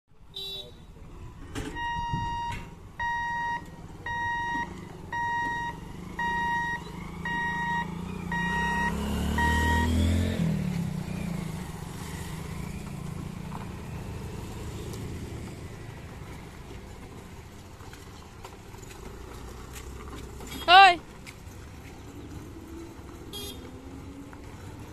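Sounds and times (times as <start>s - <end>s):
steady traffic hum: 0.1s - 24.9s
motorcycles and scooters pulling away: 0.4s - 24.9s
level-crossing warning beeps: 1.8s - 10.1s.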